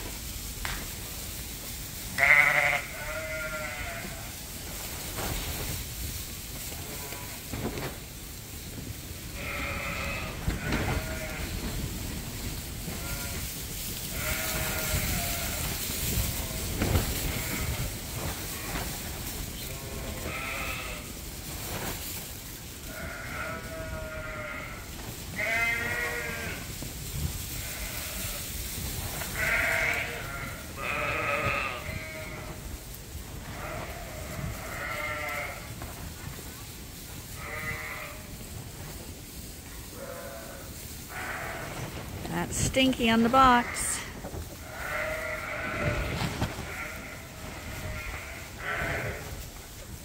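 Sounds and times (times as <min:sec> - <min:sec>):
lambs and sheep bleating: 0:02.2 - 0:04.4, 0:09.4 - 0:11.6, 0:12.9 - 0:18.9, 0:19.5 - 0:21.2, 0:22.8 - 0:26.7, 0:27.6 - 0:28.5, 0:29.3 - 0:32.6, 0:33.6 - 0:35.7, 0:37.3 - 0:38.3, 0:39.9 - 0:41.8, 0:43.3 - 0:49.4.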